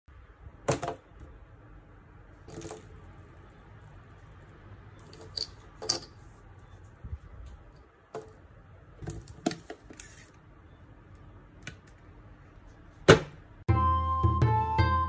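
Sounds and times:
plastic parts clicking and knocking: 0.6 - 1.3, 2.4 - 3.1, 5.0 - 6.2, 9.0 - 10.3.

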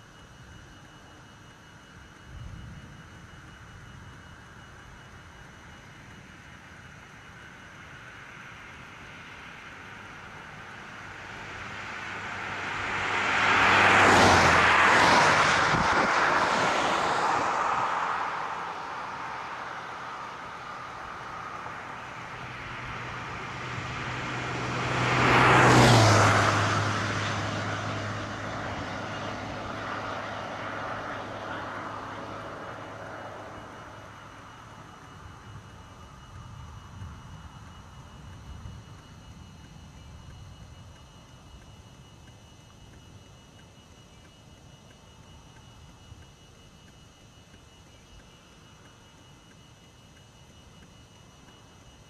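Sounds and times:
vehicles passing at speed: 9.0 - 41.8.

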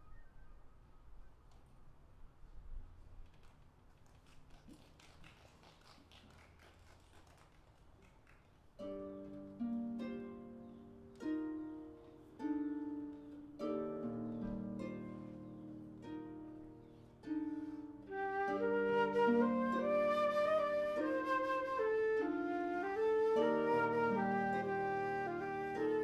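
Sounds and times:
flute: 0.0 - 1.6, 17.5 - 26.0.

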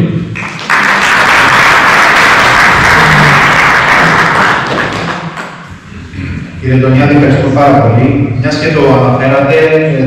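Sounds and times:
audience applauding: 0.4 - 5.7.

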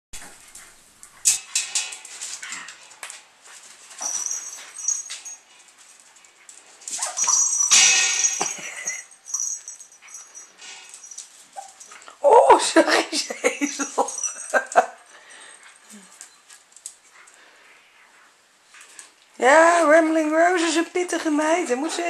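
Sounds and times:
puppies squealing and whining: 4.0 - 5.4, 6.9 - 7.8.

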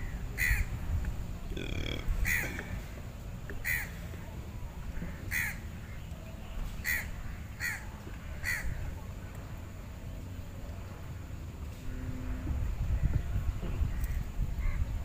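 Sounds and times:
crow cawing: 1.6 - 2.7, 5.3 - 5.6, 8.4 - 8.7.

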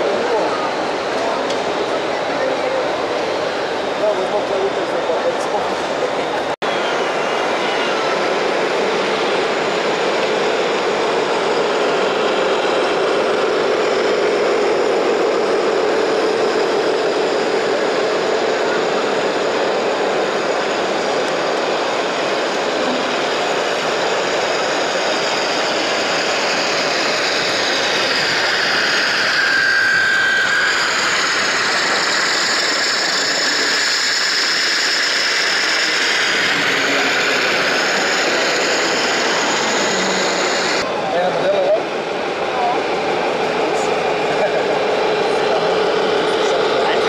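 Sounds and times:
electric motors whirring: 5.5 - 40.8.

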